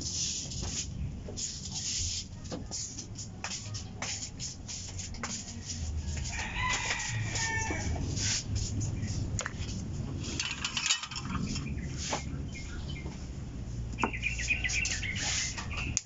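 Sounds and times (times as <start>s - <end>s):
rooster crowing: 6.1s - 8.2s
wires clicking and rustling: 6.2s - 12.1s.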